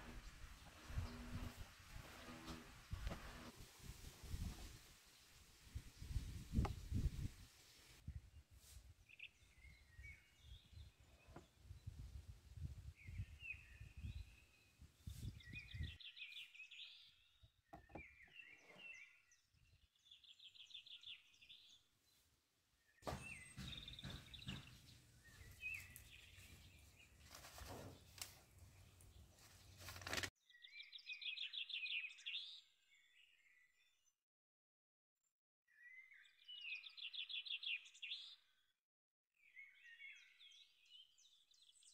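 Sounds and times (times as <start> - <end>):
birds chirping and trilling: 0.0 - 3.1, 9.1 - 12.1, 13.0 - 22.2, 23.0 - 29.9, 30.5 - 34.0, 35.7 - 38.7, 39.4 - 41.9.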